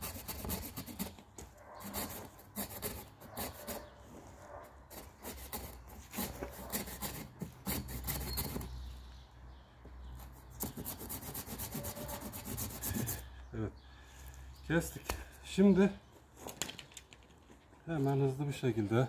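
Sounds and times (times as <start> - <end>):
hand saw cutting wood: 0.0 - 3.9, 4.9 - 8.7, 10.6 - 13.2.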